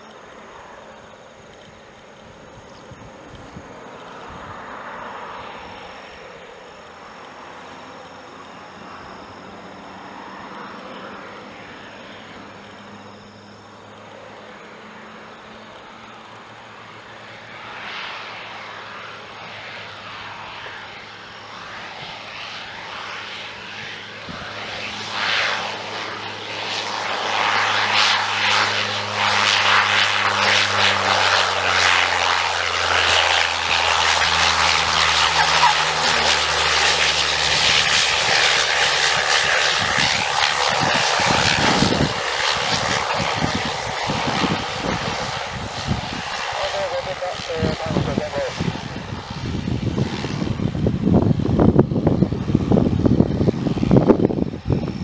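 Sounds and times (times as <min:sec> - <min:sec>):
turboprop plane droning: 0:00.0 - 0:55.0.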